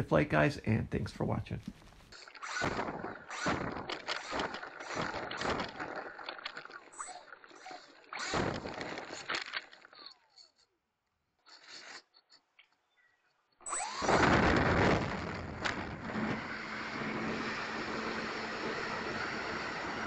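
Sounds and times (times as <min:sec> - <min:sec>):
electric motors and propellers: 0:02.1 - 0:10.6, 0:13.6 - 0:20.0.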